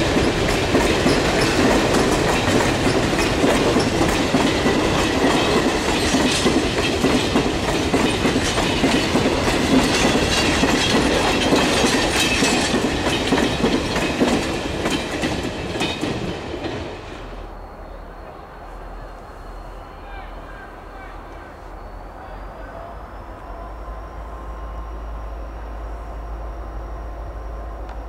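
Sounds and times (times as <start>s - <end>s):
wheels clicking over rail joints: 0.0s - 16.8s
freight train rumbling past: 0.0s - 28.0s.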